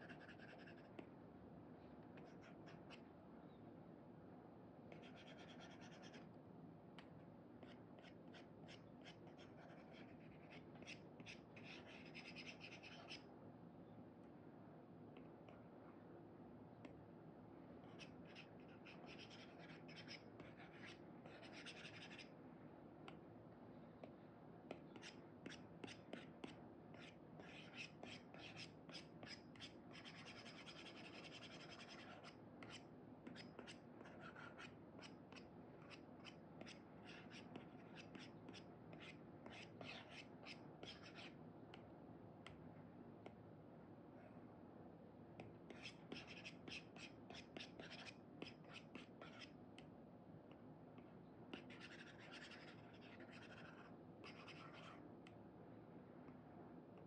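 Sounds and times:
stylus scratching on screen: 0:00.0 - 0:01.0, 0:05.0 - 0:06.2, 0:07.6 - 0:13.2, 0:17.8 - 0:22.3, 0:24.8 - 0:41.4, 0:45.7 - 0:49.6, 0:51.6 - 0:55.0.

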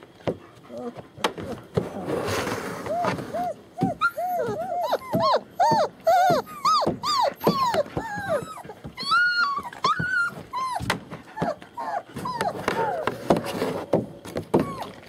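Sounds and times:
puppies whining and squealing: 0:00.7 - 0:13.4, 0:14.5 - 0:15.0.

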